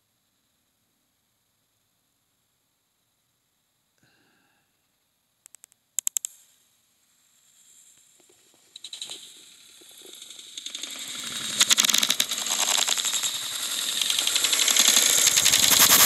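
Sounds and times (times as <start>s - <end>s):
sharp clicks: 5.4s - 6.4s, 10.6s - 16.0s.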